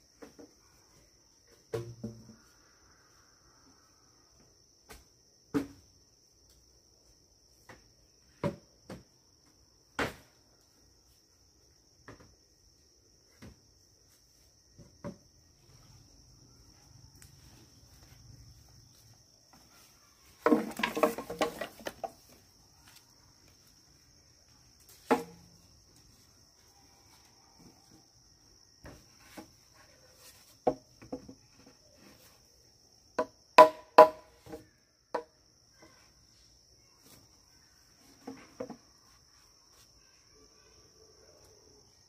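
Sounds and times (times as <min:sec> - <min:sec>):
insects chirring: 0:00.0 - 0:42.0
wooden knocks and clatter: 0:20.4 - 0:22.4, 0:30.6 - 0:31.8.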